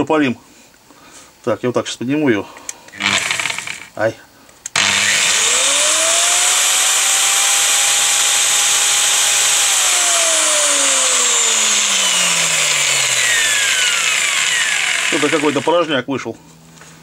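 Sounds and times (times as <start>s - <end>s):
angle grinder whining: 3.0s - 4.0s, 4.7s - 15.9s.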